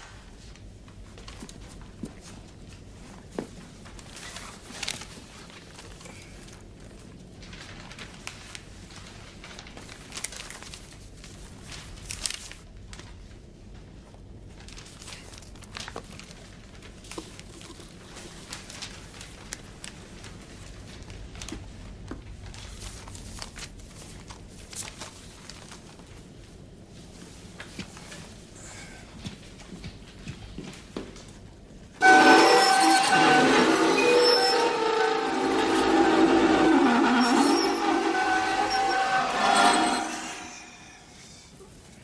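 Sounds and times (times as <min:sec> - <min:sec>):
paper rustling and crinkling: 0:00.1 - 0:31.9.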